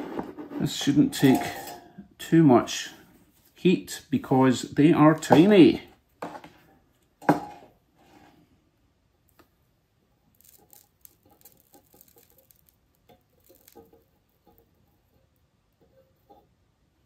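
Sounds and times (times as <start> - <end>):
flux crackling under soldering iron: 10.3 - 14.6.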